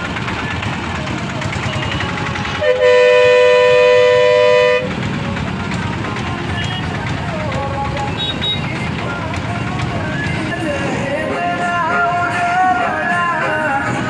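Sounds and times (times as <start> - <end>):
engines idling: 0.0 - 14.0
traffic rumble: 0.0 - 14.0
two-pitched vehicle horn: 1.7 - 4.9, 8.1 - 8.7.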